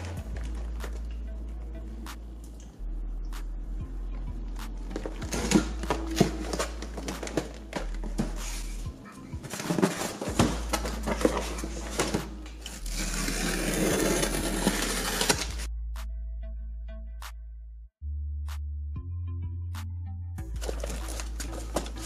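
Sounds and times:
background music: 0.0s - 22.0s
cardboard boxes knocking and rustling: 4.9s - 8.8s, 9.4s - 12.6s, 20.6s - 22.0s
carton scraping: 4.9s - 15.7s, 20.6s - 22.0s.

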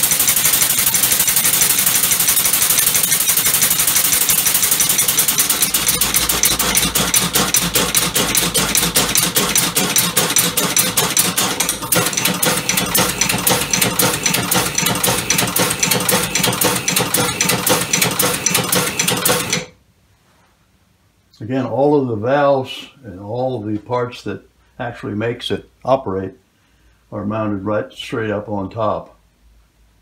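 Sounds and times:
air engine rattling knocks: 4.9s - 19.6s.

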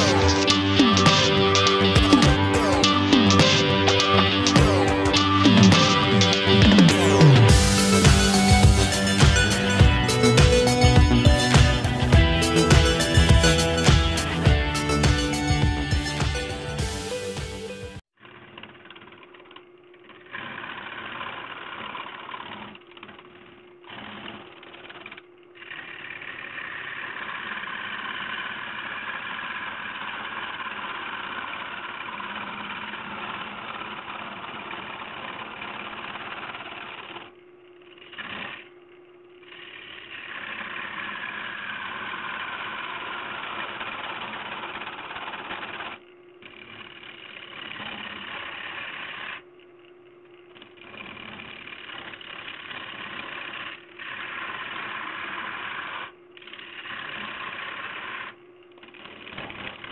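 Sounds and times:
lathe tool cutting wood hiss: 0.0s - 18.0s, 51.0s - 58.4s
lathe motor hum: 0.0s - 59.9s.

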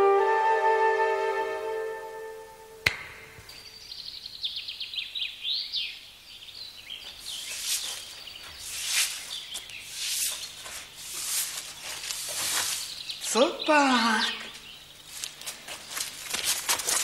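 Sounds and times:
birdsong chirps and calls: 3.4s - 16.2s
rustling hisses: 7.2s - 13.4s.

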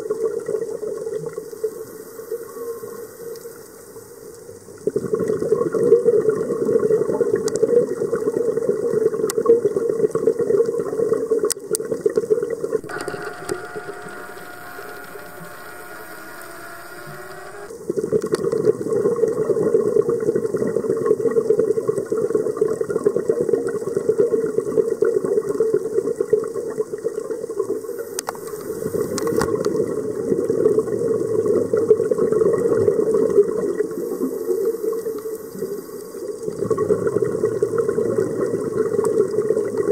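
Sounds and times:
faint sharp clicks: 28.2s - 29.5s.

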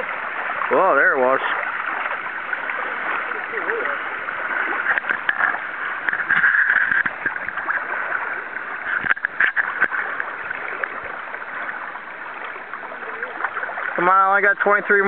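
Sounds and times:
river water rushing: 0.0s - 15.0s.

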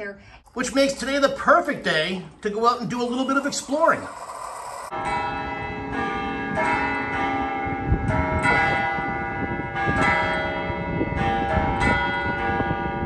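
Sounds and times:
church bells ringing: 2.6s - 4.2s, 4.9s - 13.0s.

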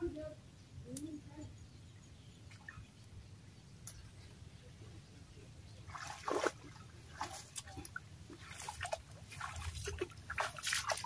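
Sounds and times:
water splashing and sloshing: 2.5s - 3.0s, 5.8s - 11.0s
feet wading in water: 5.8s - 11.0s.

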